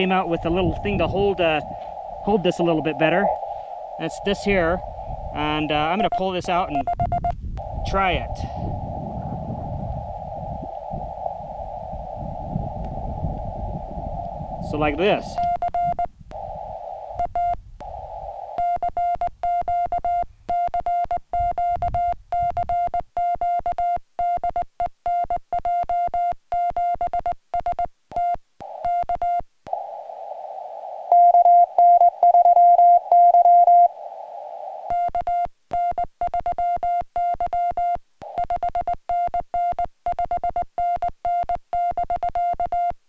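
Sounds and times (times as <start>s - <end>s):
morse code beeps: 0.0s - 8.7s, 14.6s - 29.4s, 31.1s - 34.0s, 34.8s - 43.0s
radio receiver hiss: 0.0s - 23.0s, 28.6s - 36.5s, 38.2s - 39.8s.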